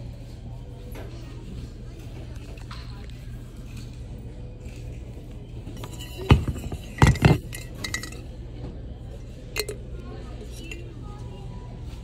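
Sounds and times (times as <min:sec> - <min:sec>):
hard objects clinking and knocking: 0:05.8 - 0:08.2.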